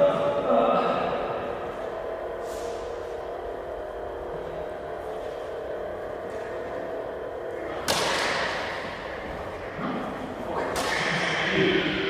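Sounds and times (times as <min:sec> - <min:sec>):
lightsaber hum: 0:00.0 - 0:12.0
lightsaber blades clashing: 0:07.5 - 0:12.0.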